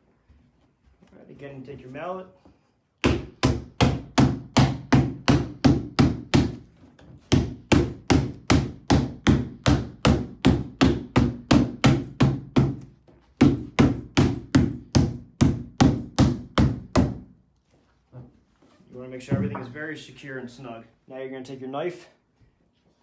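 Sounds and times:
rubber mallet striking plastic: 3.0s - 6.7s, 7.3s - 17.3s.

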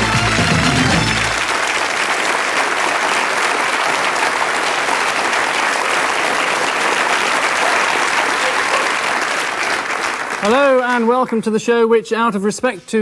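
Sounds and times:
audience applauding: 0.0s - 11.4s.

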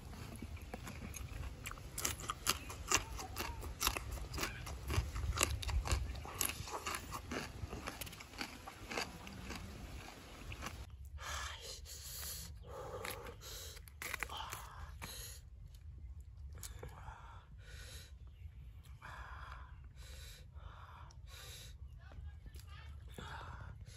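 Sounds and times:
crunchy chewing: 0.0s - 11.0s, 12.1s - 17.0s.

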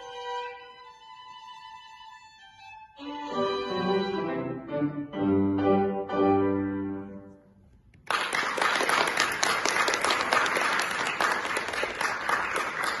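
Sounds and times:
audience applause: 8.0s - 13.0s.

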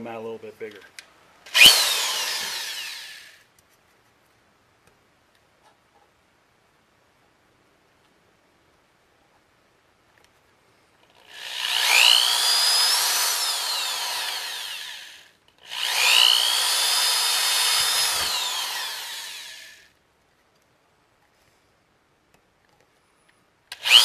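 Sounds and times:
power drill boring through tin: 1.5s - 3.4s, 11.2s - 19.8s, 23.7s - 24.0s.

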